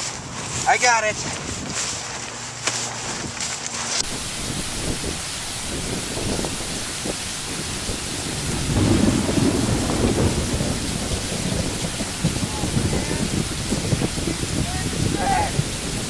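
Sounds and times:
steady rain: 4.0s - 16.0s
thunder rumble: 4.0s - 16.0s.

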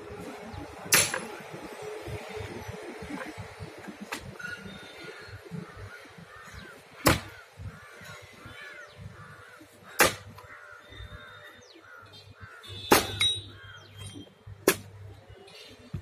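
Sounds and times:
axe chopping wood: 7.0s - 7.4s, 9.9s - 10.5s, 12.9s - 13.3s, 14.6s - 14.9s.

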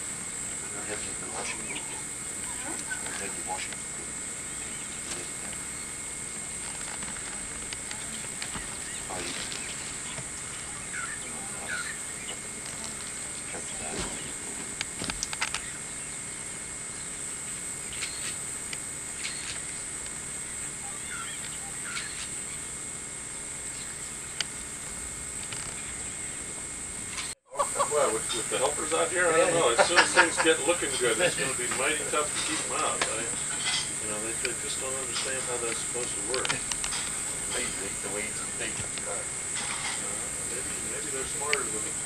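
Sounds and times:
high-pitched insect drone: 0.0s - 42.0s
bird chirps: 1.5s - 3.2s, 8.5s - 12.5s, 17.9s - 18.4s, 20.8s - 22.6s.

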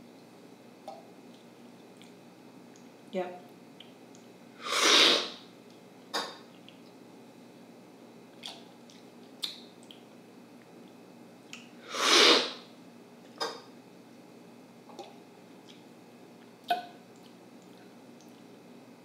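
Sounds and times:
loud airy coffee slurp: 4.6s - 5.4s, 11.9s - 12.6s.

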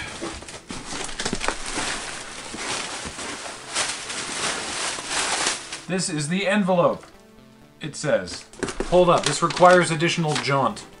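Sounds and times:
plastic packing crinkling: 0.0s - 6.0s, 8.3s - 10.7s.

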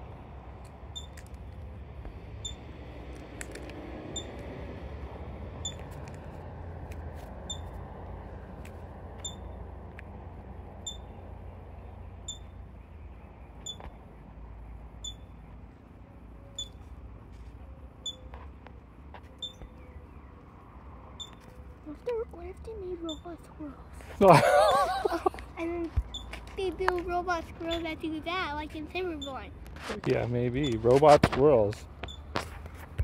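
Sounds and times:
ground squirrel alarm chirps: 7.5s - 7.7s, 10.8s - 11.3s, 12.2s - 12.7s, 15.0s - 15.5s, 16.6s - 16.8s, 19.4s - 19.9s, 21.2s - 21.5s, 26.1s - 26.4s.

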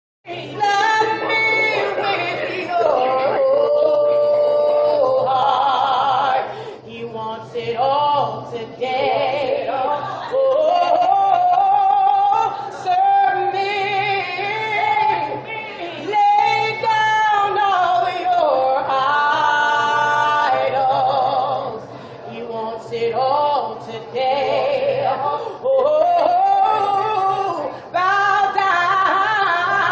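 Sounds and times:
unaccompanied singing voices: 0.3s - 29.9s.

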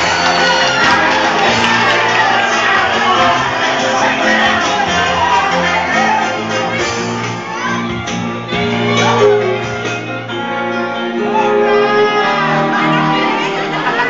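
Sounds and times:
people shouting: 0.0s - 9.4s
loud music with singing: 0.0s - 14.0s.

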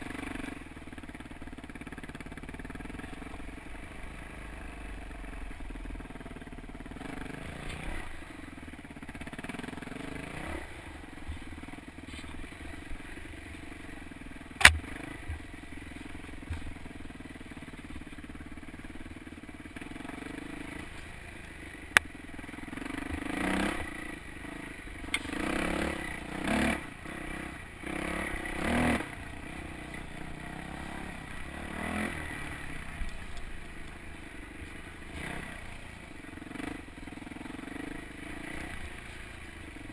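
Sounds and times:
dirt bike engine running: 0.0s - 39.9s
sharp knocks: 14.6s - 14.9s.

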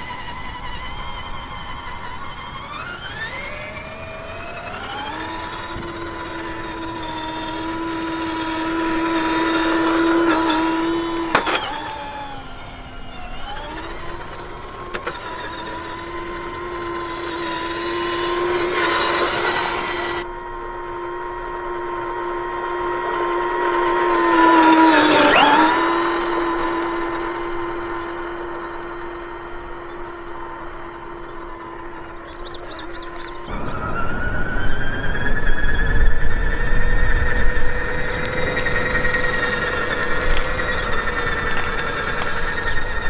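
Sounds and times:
toy truck electric motor whining: 0.0s - 43.0s
tyres crunching gravel: 21.9s - 33.9s, 37.0s - 43.0s.

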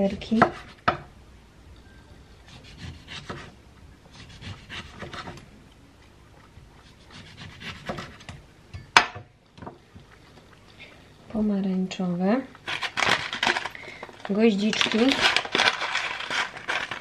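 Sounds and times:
knife sawing through orange peel: 4.1s - 5.2s, 7.0s - 8.2s.

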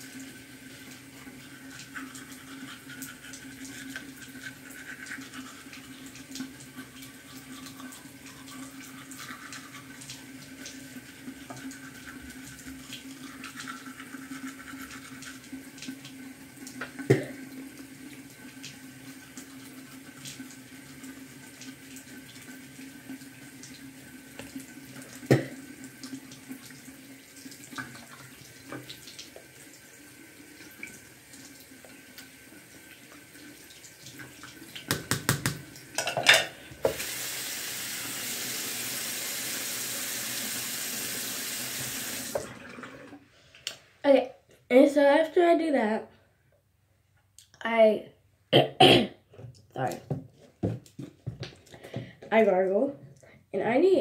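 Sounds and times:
toothbrush scrubbing: 1.3s - 10.1s, 11.5s - 15.7s
clatter at sink: 34.9s - 37.0s.

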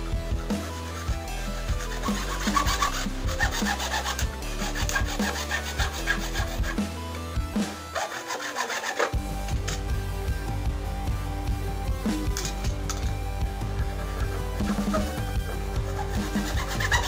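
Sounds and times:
hacksaw cutting plastic pipe: 1.8s - 6.7s, 7.6s - 9.8s, 14.2s - 17.0s.

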